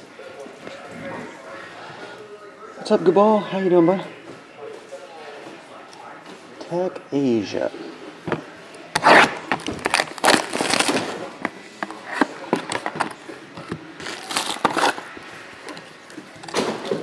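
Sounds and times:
box cutter slicing shrink wrap: 9.0 - 11.1
plastic wrap crinkling: 9.5 - 11.3, 14.0 - 15.1.

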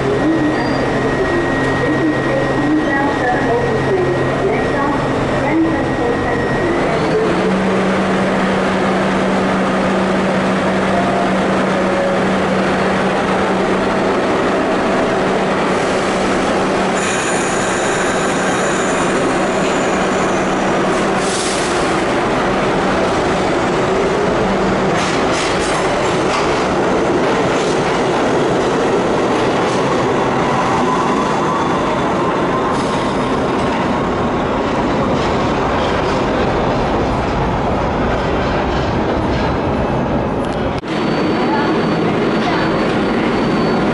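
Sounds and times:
subway train running past: 0.0 - 43.9
high-pitched wheel squeal: 0.2 - 2.7, 17.0 - 20.6, 40.9 - 43.9.

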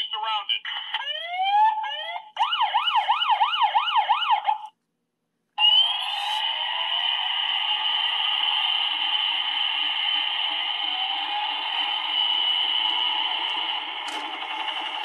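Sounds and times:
electronic toy siren: 1.0 - 4.7, 5.6 - 15.0
toy rotor whirring: 5.8 - 15.0.

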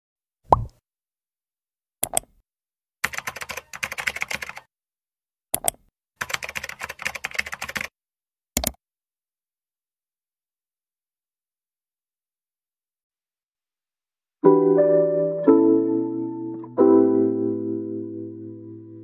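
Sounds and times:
computer keyboard typing: 3.0 - 4.7, 5.6 - 7.9.

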